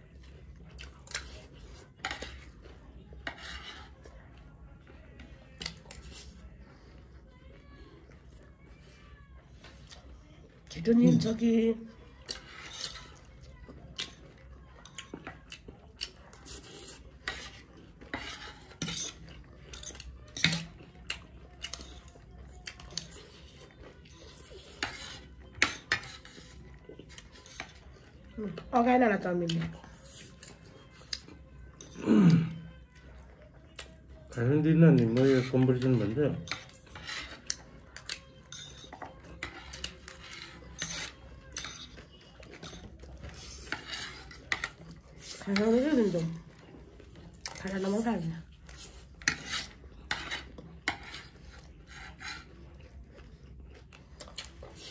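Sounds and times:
cutlery scraping plates: 0:16.5 - 0:20.7, 0:24.3 - 0:27.8, 0:35.0 - 0:42.0, 0:42.6 - 0:46.4, 0:48.7 - 0:52.5
cutlery clinking on plates: 0:36.4 - 0:42.0, 0:42.6 - 0:44.9.

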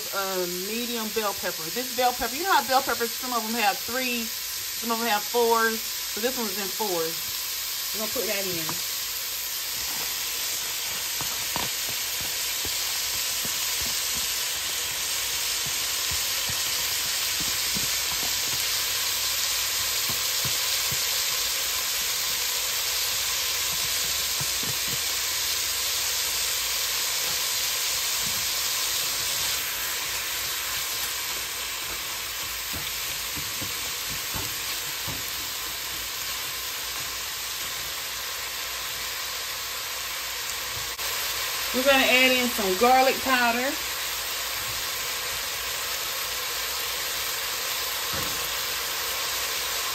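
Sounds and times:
beef sizzling in a pot: 0:00.0 - 0:49.9
spatula scraping and tapping: 0:32.4 - 0:36.1.

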